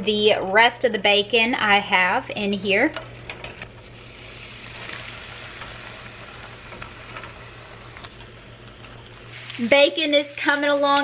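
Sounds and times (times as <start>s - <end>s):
low steady hum: 0.0s - 11.0s
bacon sizzling in a frying pan: 3.8s - 11.0s.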